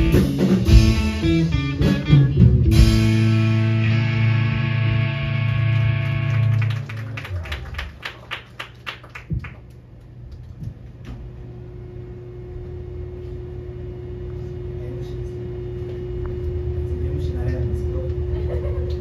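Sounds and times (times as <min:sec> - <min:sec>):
electric guitar and bass chord: 0:00.0 - 0:07.0
amplifier hum: 0:00.0 - 0:07.2, 0:09.7 - 0:19.0.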